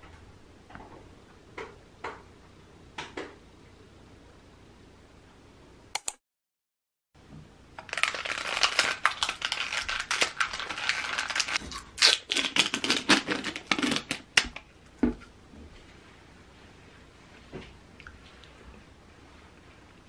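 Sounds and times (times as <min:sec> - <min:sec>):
plastic packaging crackling: 0:07.8 - 0:14.4.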